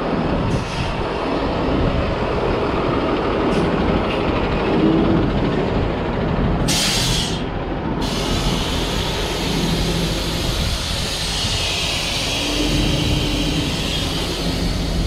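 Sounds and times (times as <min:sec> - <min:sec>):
air hiss: 0:06.7 - 0:07.4, 0:08.0 - 0:15.0.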